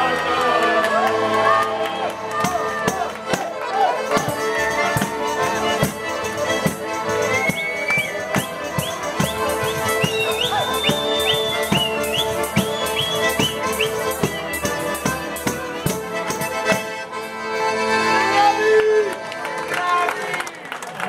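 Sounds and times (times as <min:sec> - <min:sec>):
accordions playing folk tune: 0:00.0 - 0:21.0
tambourine jingling beat: 0:02.4 - 0:17.1.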